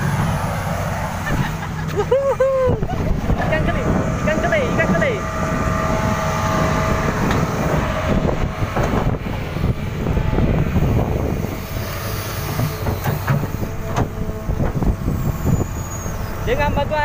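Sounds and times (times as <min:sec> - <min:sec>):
excavator engine droning: 0:00.0 - 0:17.0
metal knocks and clanks: 0:12.4 - 0:14.9.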